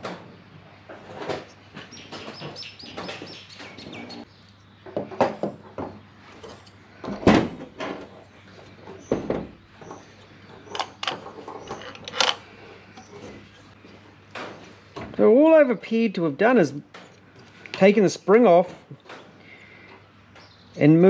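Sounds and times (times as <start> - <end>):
metal parts clicking and knocking: 10.7 - 12.4.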